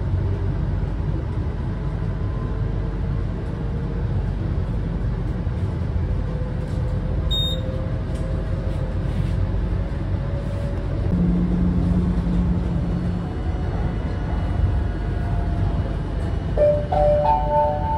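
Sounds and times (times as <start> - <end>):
vehicle engine rumble: 0.0 - 17.9
high beep: 7.3 - 7.6
low hum: 10.4 - 17.9.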